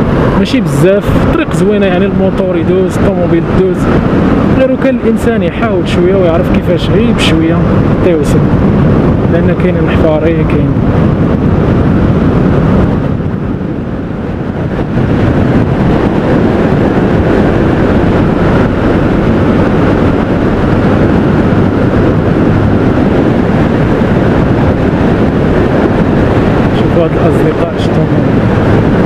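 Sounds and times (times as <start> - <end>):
wind rush on microphone: 0.0 - 29.0
motorcycle engine: 10.4 - 29.0.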